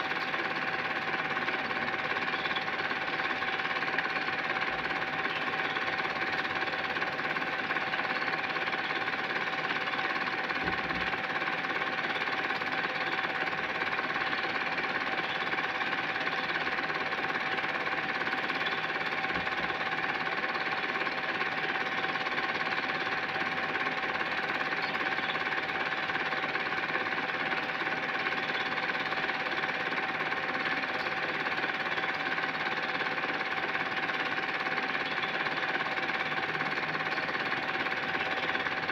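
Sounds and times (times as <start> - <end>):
film projector clatter: 0.0 - 38.9.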